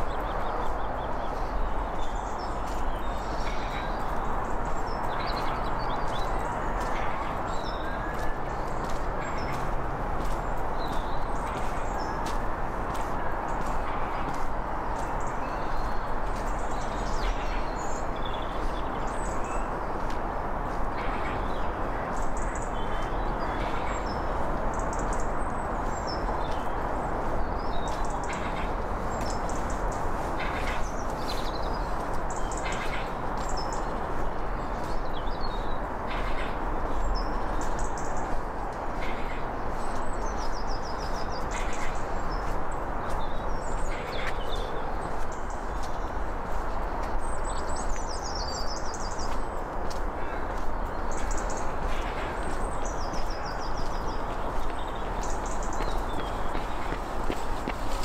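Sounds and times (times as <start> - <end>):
footsteps on pavement: 0.0 - 58.0
small birds chirping: 0.0 - 58.0
steady rushing hiss: 16.1 - 58.0.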